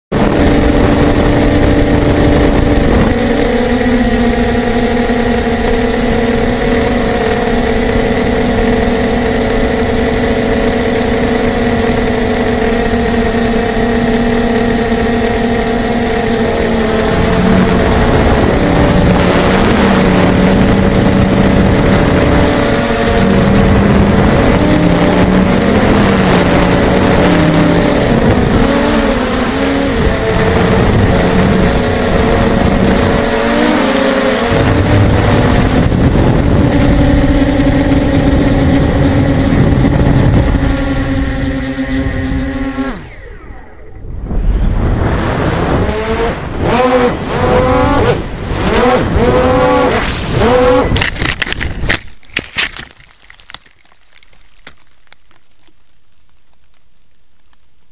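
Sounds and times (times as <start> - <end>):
drone propellers whirring: 0.1 - 52.2.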